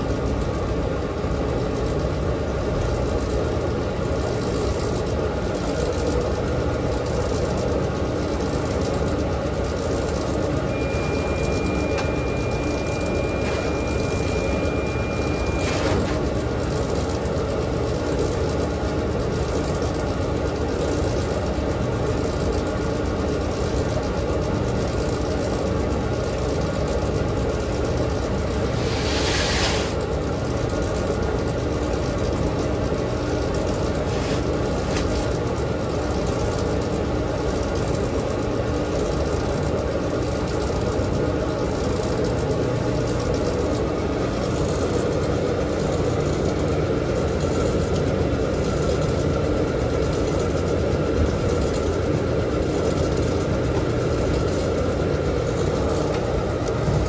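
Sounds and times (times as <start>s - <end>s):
washing machine hum and rumble: 0.0s - 57.0s
thin high steady tone: 10.3s - 18.4s.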